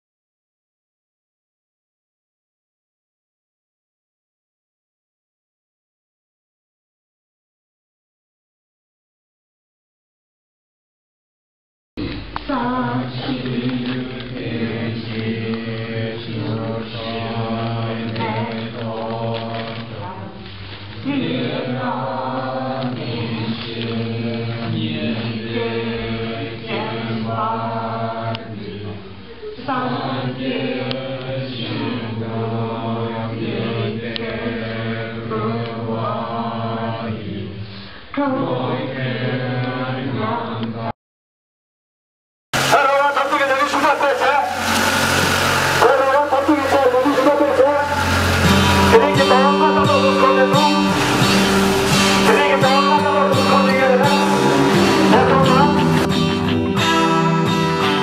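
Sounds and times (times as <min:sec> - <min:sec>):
group chanting prayers in unison: 0:12.0 - 0:40.9, 0:42.6 - 0:56.1.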